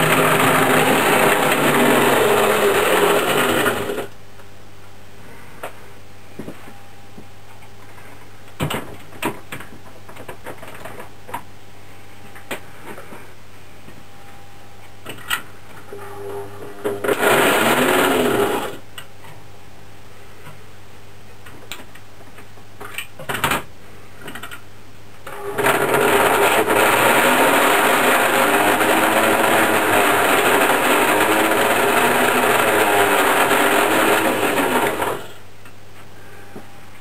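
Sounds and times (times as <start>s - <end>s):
electric motor and gears whirring: 0.0s - 4.2s, 15.9s - 18.8s, 25.3s - 35.4s
low steady hum: 0.0s - 17.2s, 35.2s - 37.0s.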